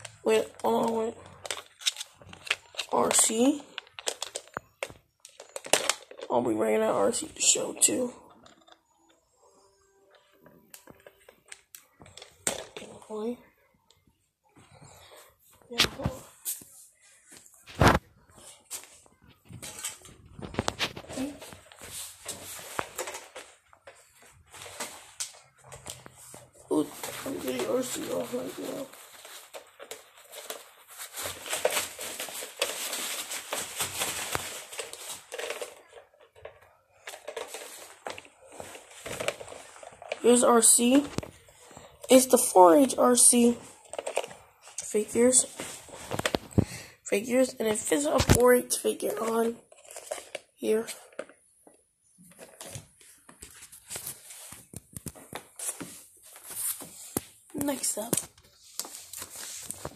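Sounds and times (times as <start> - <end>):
plastic toys clicking: 0.8 - 6.3
camera handling rustling: 1.4 - 2.8
rustling of bedding: 15.2 - 36.1.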